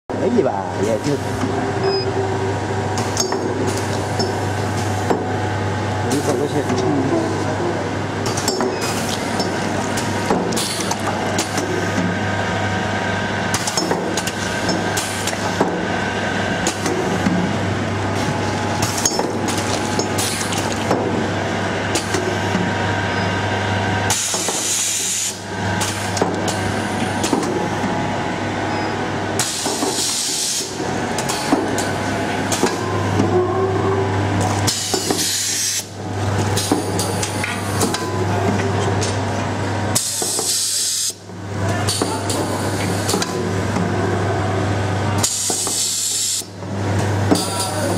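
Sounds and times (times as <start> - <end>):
machine humming: 0.1 - 40.3
pneumatic air hissing: 34.7 - 35.9, 45.2 - 46.4.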